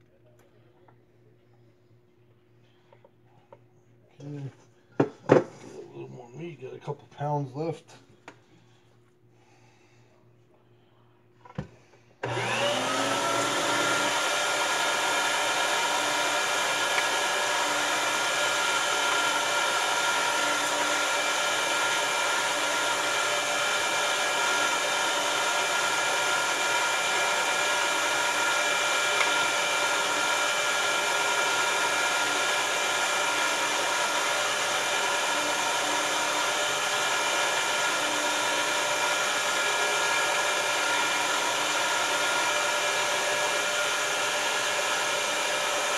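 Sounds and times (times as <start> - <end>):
electric meat grinder whining: 12.2 - 45.9.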